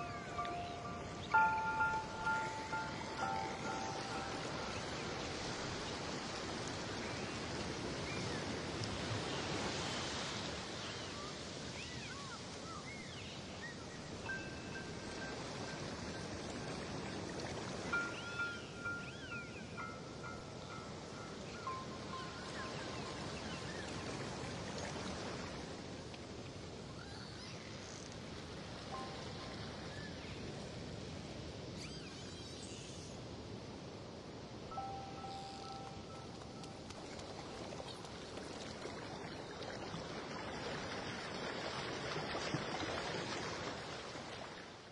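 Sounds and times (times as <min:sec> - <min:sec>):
dolphins whistling: 0:00.0 - 0:05.3, 0:17.9 - 0:23.9, 0:31.8 - 0:33.0, 0:34.7 - 0:36.9
underwater water noise: 0:00.0 - 0:10.6, 0:34.7 - 0:44.9.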